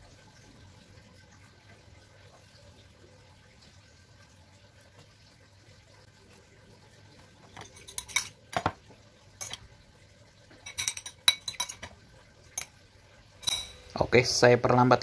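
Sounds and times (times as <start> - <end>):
metal spoon clinking on ceramic bowl: 7.6 - 8.7, 9.4 - 9.6, 10.6 - 11.9, 13.4 - 13.9.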